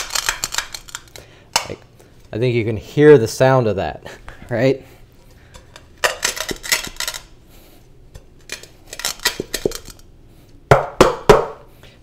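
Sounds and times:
coffee beans crunching under pot: 0:00.0 - 0:01.2, 0:05.6 - 0:07.4, 0:08.4 - 0:10.1.

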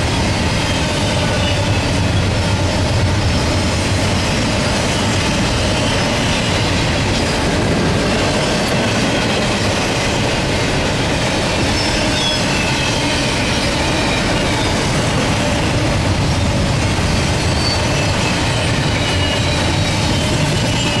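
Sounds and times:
train wheels on rails: 0:00.0 - 0:21.0
high wheel squeals: 0:11.7 - 0:14.8, 0:17.2 - 0:21.0.

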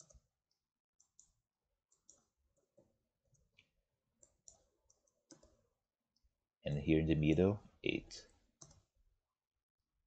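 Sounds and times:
keyboard and mouse clicks: 0:00.0 - 0:05.6, 0:08.6 - 0:08.9.

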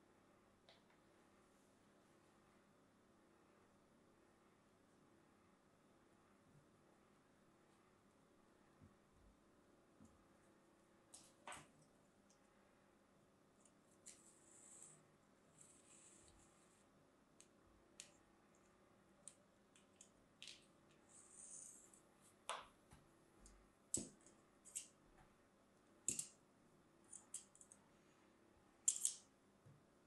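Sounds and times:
scissors snipping and clicking: 0:28.9 - 0:29.2.

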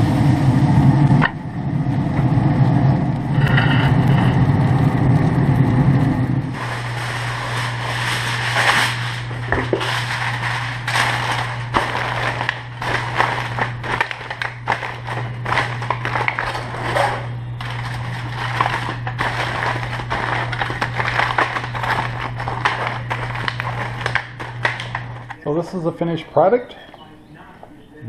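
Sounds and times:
low hum: 0:00.0 - 0:28.0
aluminum foil crinkling: 0:06.5 - 0:26.0.

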